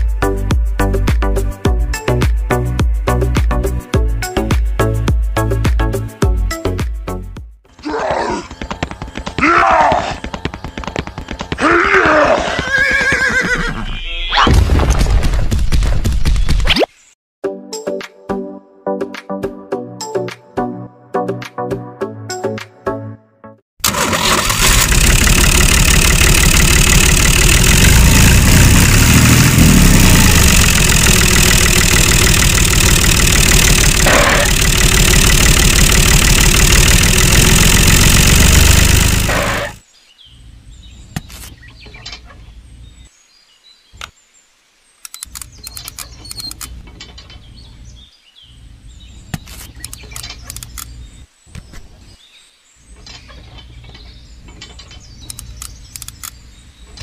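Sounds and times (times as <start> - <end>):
music: 0.0 - 7.7, 17.4 - 23.6
tractor engine: 23.8 - 39.8.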